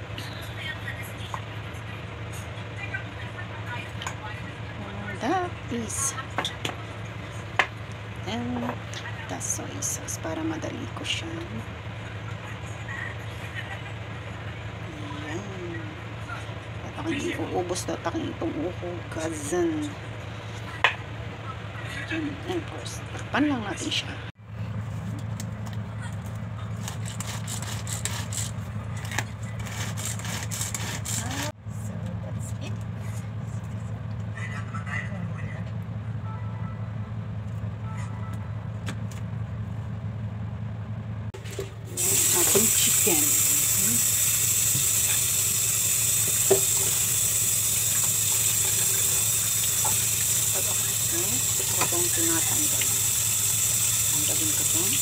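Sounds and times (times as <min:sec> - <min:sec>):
tap running into steel sink: 0:41.5 - 0:43.1, 0:46.1 - 0:53.1.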